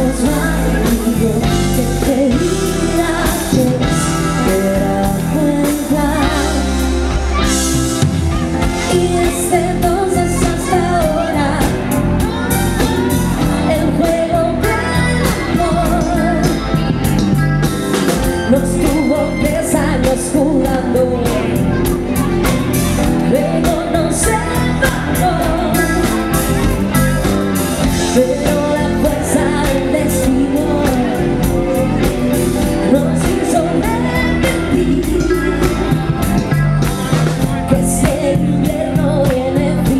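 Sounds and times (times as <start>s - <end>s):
drum kit beat: 0.0s - 39.9s
electric guitars: 0.0s - 39.9s
keyboard: 0.0s - 39.9s
woman singing lead: 0.0s - 39.9s.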